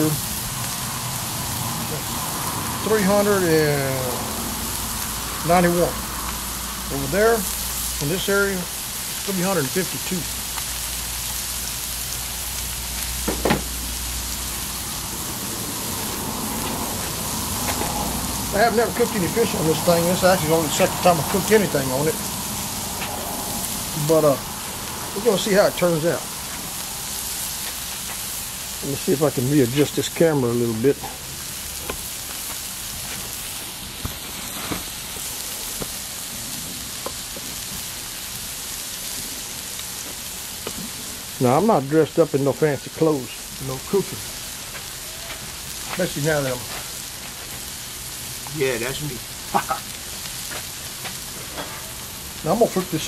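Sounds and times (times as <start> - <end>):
fish sizzling on a griddle: 0.0 - 53.0.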